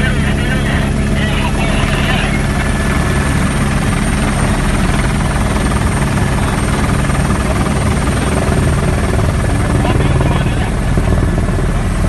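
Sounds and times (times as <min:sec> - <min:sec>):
helicopter turbine and rotor drone: 0:00.0 - 0:12.0.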